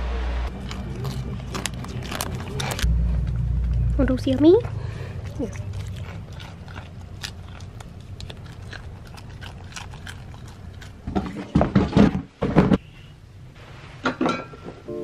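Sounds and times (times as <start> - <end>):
goat crunching a snack: 0.5 - 3.8, 5.1 - 11.6.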